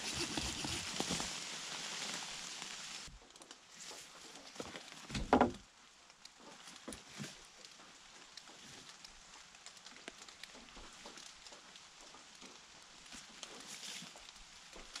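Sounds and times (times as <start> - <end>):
wooden pole scraping wall: 0.0 - 2.0
faint ticks and drips: 2.6 - 15.0.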